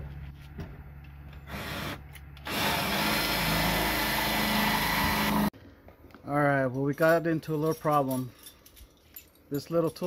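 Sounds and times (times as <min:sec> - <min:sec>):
cordless drill drilling sheet metal: 0:01.5 - 0:05.5.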